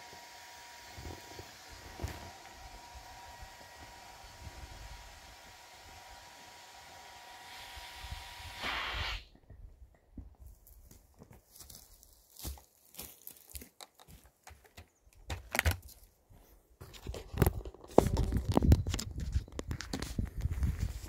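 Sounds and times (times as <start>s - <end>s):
footsteps through dry heather: 10.4s - 14.8s, 15.8s - 21.0s.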